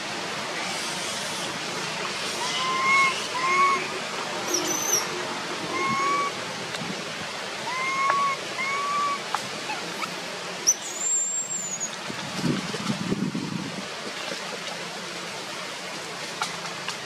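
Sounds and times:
baby monkey coo calls: 2.2s - 3.9s, 5.7s - 6.4s, 7.6s - 10.2s.

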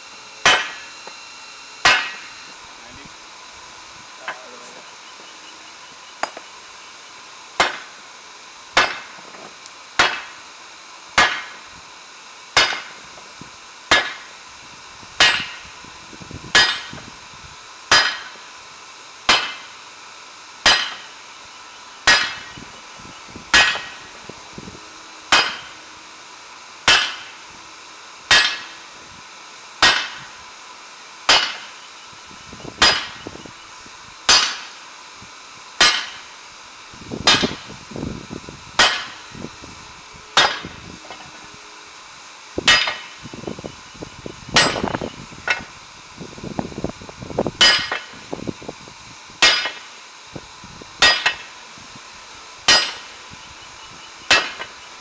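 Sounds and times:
hammer striking hot steel on anvil: 0.4s - 1.2s, 1.8s - 2.4s, 6.2s - 6.5s, 7.6s - 8.0s, 8.8s - 9.4s, 10.0s - 10.4s, 11.2s - 11.7s, 12.5s - 13.0s, 13.9s - 14.3s, 15.2s - 15.6s, 16.5s - 17.0s, 17.9s - 18.5s, 19.2s - 19.8s, 20.6s - 21.2s, 22.0s - 22.6s, 23.5s - 24.1s, 25.3s - 25.8s, 26.8s - 27.4s, 28.3s - 28.9s, 29.8s - 30.4s, 31.3s - 31.9s, 32.8s - 33.3s, 34.3s - 34.8s, 35.8s - 36.3s, 37.2s - 37.7s, 38.8s - 39.3s, 40.4s - 41.4s, 42.6s - 43.2s, 44.6s - 45.7s, 47.6s - 48.2s, 49.4s - 50.0s, 51.0s - 51.6s, 52.7s - 53.2s, 54.3s - 54.8s.

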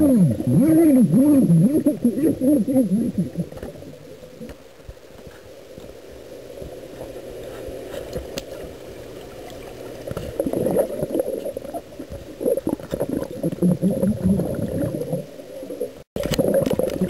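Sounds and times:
muffled underwater churning and gurgling: 0.0s - 5.4s, 6.0s - 17.0s.

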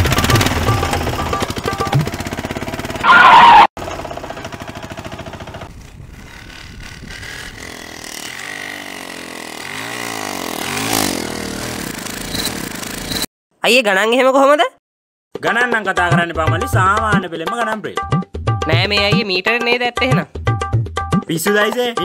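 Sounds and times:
auto-rickshaw engine passing: 0.0s - 13.3s.

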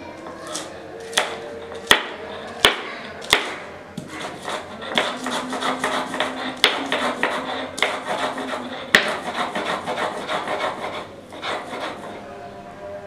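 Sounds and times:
grinding stone rubbing and scraping: 0.5s - 3.4s, 4.0s - 12.3s
stone roller knocking on slab: 1.2s - 10.8s.

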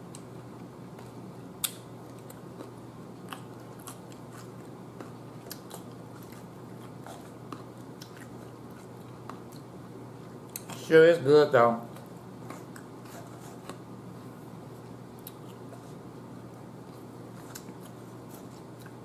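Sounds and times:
cucumber being chewed: 0.1s - 10.8s, 11.9s - 19.0s.

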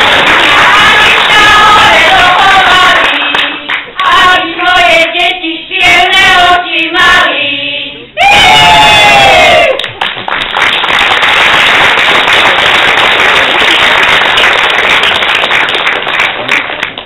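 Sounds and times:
women singing a folk song: 0.4s - 8.2s.

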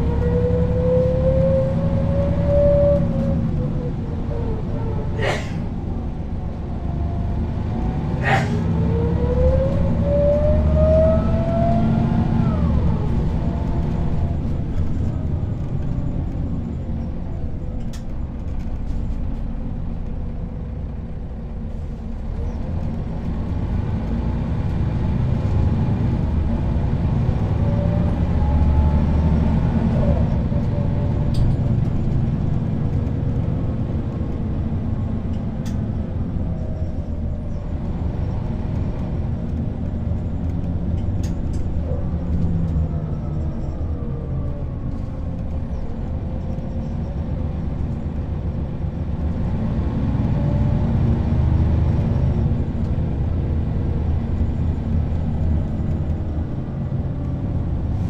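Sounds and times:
bus drivetrain rumble: 0.0s - 58.0s.

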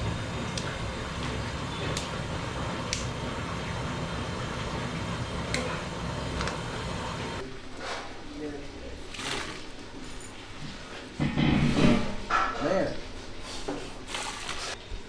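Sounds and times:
gas burner rushing: 0.0s - 7.4s.

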